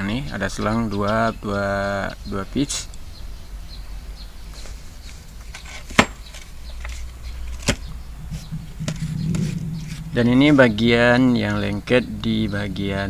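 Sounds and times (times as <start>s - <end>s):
low steady hum: 6.1s - 12.8s.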